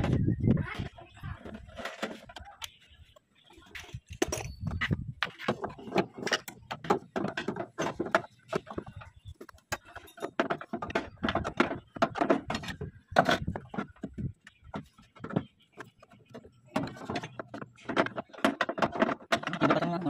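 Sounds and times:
hand tools and plastic clattering: 0:00.0 - 0:20.0.

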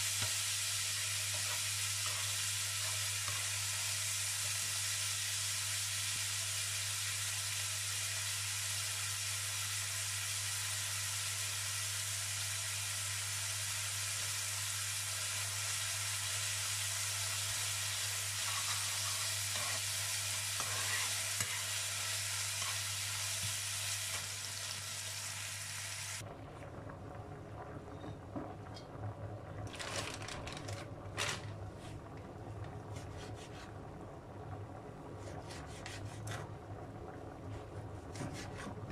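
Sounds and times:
meat sizzling in a frying pan: 0:00.0 - 0:26.2.

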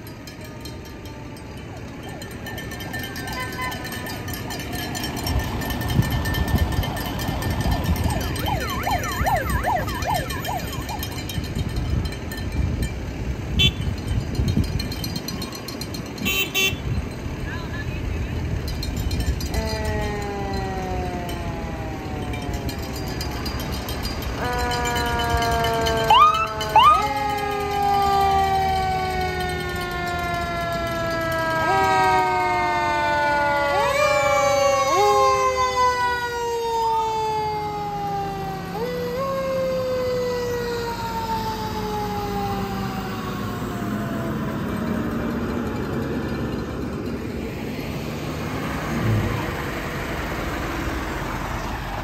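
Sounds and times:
fire engine mechanical siren: 0:00.0 - 0:17.1, 0:18.5 - 0:52.0
truck engines rumbling: 0:00.0 - 0:52.0
loud short siren blasts: 0:24.7 - 0:29.2.

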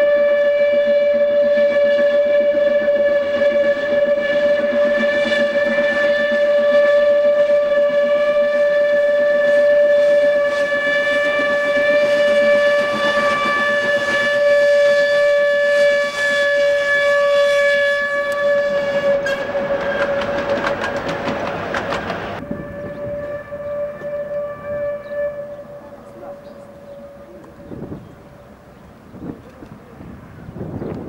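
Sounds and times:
steam locomotive whistle: 0:00.0 - 0:21.2, 0:22.4 - 0:28.7
rattling train clatter: 0:18.3 - 0:22.4.

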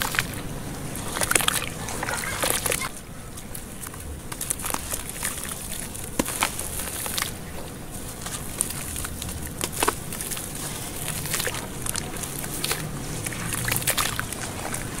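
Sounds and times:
wet squishing and sloshing: 0:00.0 - 0:15.0
gritty crackles and snaps: 0:01.0 - 0:15.0.

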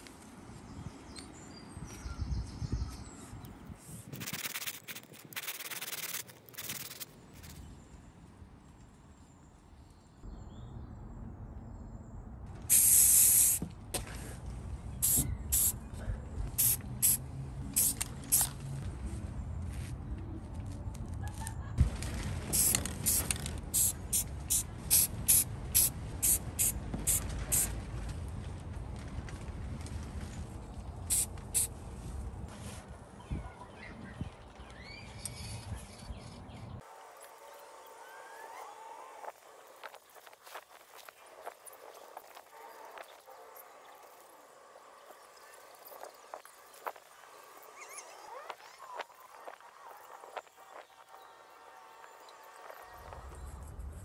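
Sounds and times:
spray paint can hissing: 0:04.0 - 0:07.2, 0:12.7 - 0:13.7, 0:15.0 - 0:15.8, 0:16.6 - 0:17.2, 0:17.8 - 0:18.6, 0:22.5 - 0:27.7, 0:31.1 - 0:31.7
low outdoor rumble: 0:13.7 - 0:33.6.

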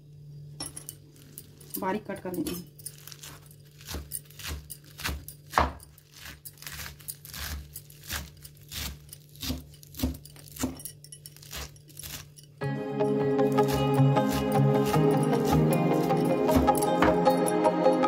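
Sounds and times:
cleaver chopping on wooden board: 0:03.9 - 0:05.8, 0:08.8 - 0:10.8, 0:13.6 - 0:17.3.

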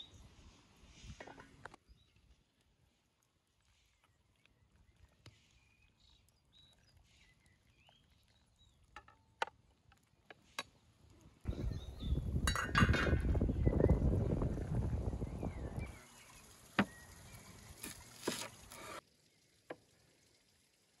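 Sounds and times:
faint bird chirps: 0:03.8 - 0:09.0, 0:11.5 - 0:12.3
metal skimmer clinking on pot: 0:12.4 - 0:13.2.

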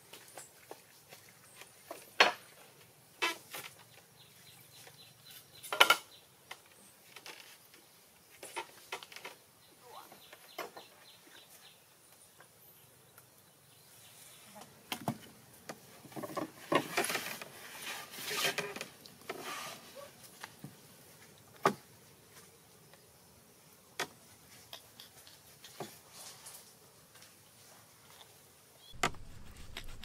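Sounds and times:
chicken rubbing and rustling: 0:28.9 - 0:30.0.

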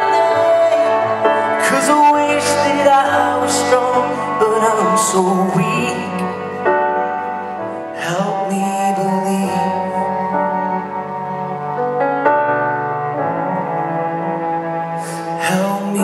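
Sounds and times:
person singing: 0:00.0 - 0:11.2, 0:15.0 - 0:16.0
slow live band with cello: 0:00.0 - 0:16.0.

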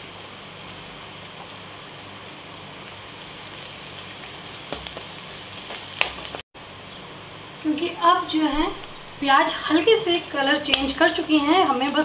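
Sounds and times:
onions sizzling in hot oil: 0:00.0 - 0:12.0.

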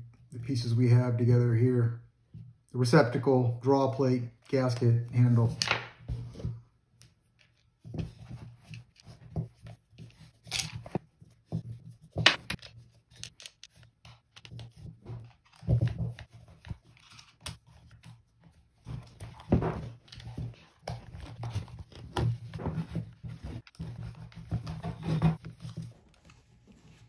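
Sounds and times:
plastic parts clicking: 0:12.3 - 0:14.5.

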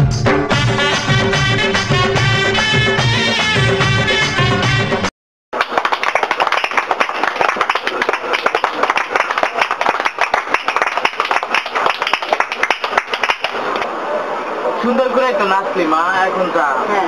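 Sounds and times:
rapid hand clapping: 0:05.6 - 0:13.9.

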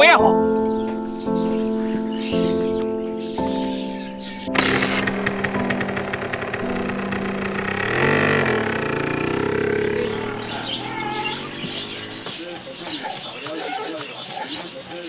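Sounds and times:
soft background music: 0:00.0 - 0:04.6
small motorcycle engine revving: 0:04.5 - 0:13.3.

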